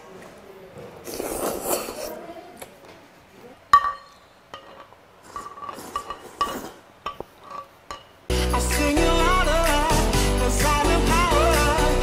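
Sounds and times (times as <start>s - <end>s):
tableware clinking: 3.7s - 8.2s.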